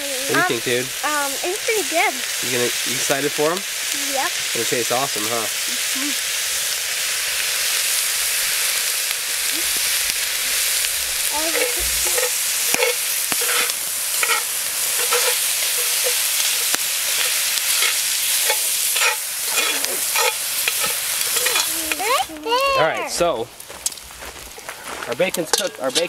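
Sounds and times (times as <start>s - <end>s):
bacon and onions sizzling: 0.0s - 26.0s
utensil scraping a pot: 11.5s - 22.0s.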